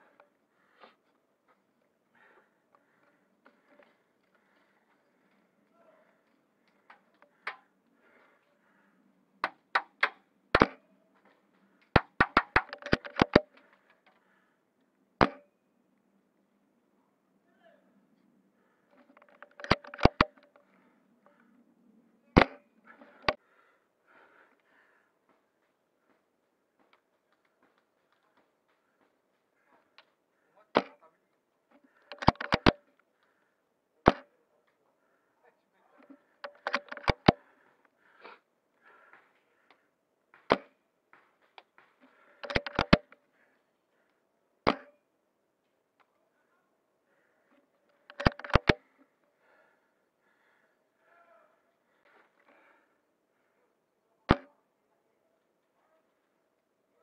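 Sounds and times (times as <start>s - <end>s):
airsoft rifle clacks: 6.6s - 7.7s, 9.4s - 14.2s, 18.9s - 21.4s, 31.8s - 33.0s, 36.0s - 37.6s, 39.0s - 43.2s, 47.9s - 49.0s.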